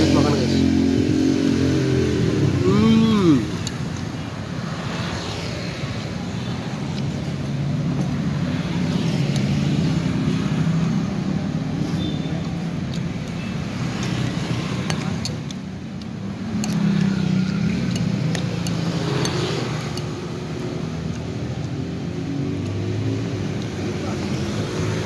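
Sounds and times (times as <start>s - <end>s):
engine rising and falling in pitch: 0.0s - 3.7s
rumble of passing traffic: 0.0s - 25.0s.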